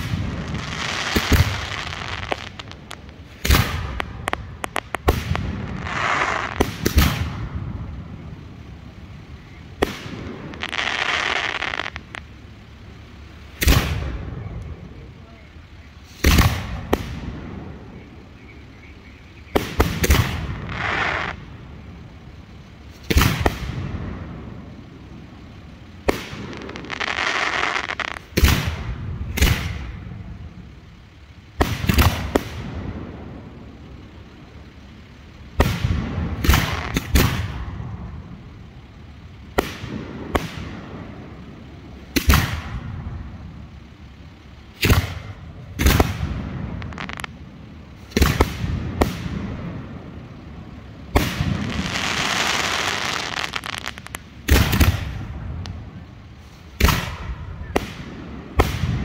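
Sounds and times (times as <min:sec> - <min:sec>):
firework shells bursting: 0:00.0 - 0:12.4, 0:25.6 - 0:30.2, 0:33.5 - 0:59.0
firework hiss: 0:00.0 - 0:59.0.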